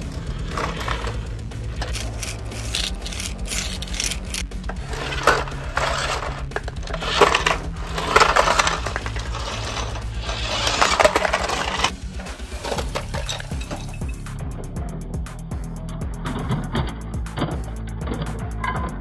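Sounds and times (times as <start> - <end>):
plastic boxes rattling: 0.0 - 14.0
boxes clattering onto concrete: 0.0 - 14.2.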